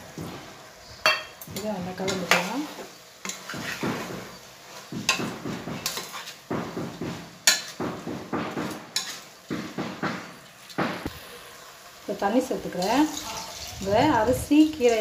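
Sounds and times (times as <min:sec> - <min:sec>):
metal ladle scraping a pot: 0:03.2 - 0:05.2, 0:05.8 - 0:06.4, 0:08.9 - 0:09.4.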